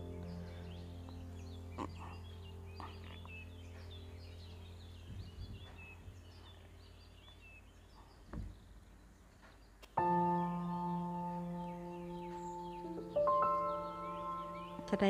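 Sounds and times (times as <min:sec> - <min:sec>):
bell-like chord: 0:00.0 - 0:05.0, 0:10.0 - 0:15.0
low hum: 0:00.0 - 0:07.2
soft background music: 0:00.0 - 0:07.6, 0:10.0 - 0:15.0
bird chirping: 0:00.0 - 0:15.0
soft bumps: 0:08.0 - 0:08.8.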